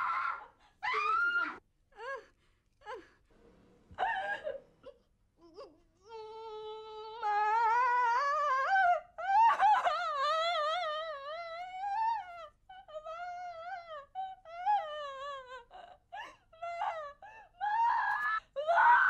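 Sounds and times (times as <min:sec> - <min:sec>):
woman wailing and sobbing: 0:04.0 - 0:19.0.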